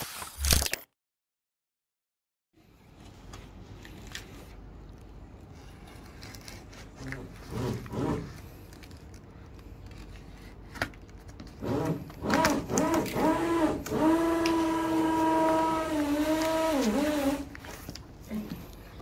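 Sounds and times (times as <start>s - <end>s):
cutter slitting packing tape: 0.0s - 0.9s, 11.4s - 17.5s.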